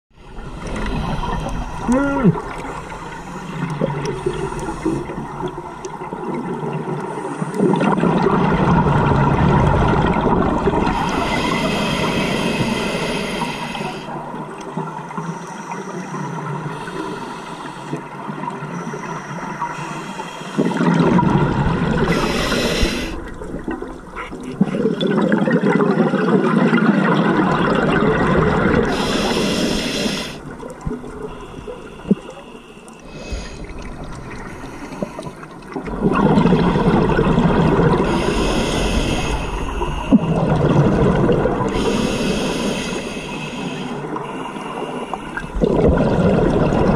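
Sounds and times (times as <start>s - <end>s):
bubbling exhalations: 0.4s - 6.5s, 33.0s - 42.9s, 45.2s - 46.9s
hissing inhalations: 10.9s - 14.2s, 19.0s - 20.9s, 22.0s - 23.4s, 28.9s - 30.5s, 31.3s - 35.4s, 38.0s - 40.4s, 41.7s - 45.5s.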